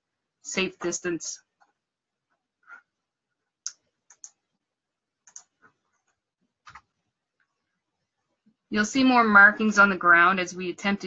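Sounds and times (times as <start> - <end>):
computer clicks: 3.6 - 4.5, 5.2 - 7.0.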